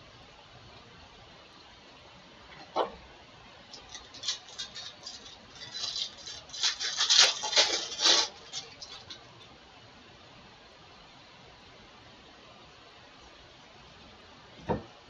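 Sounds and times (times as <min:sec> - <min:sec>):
foil wrapper tearing and crinkling: 0:03.8 - 0:09.2.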